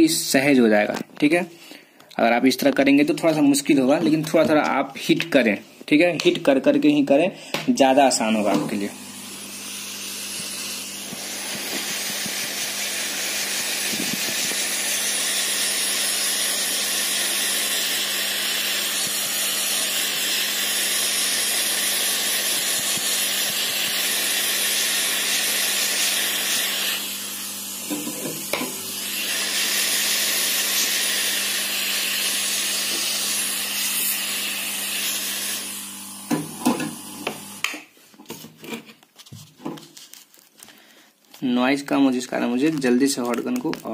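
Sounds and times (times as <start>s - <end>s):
hot air gun blowing: 8.5s - 37.8s.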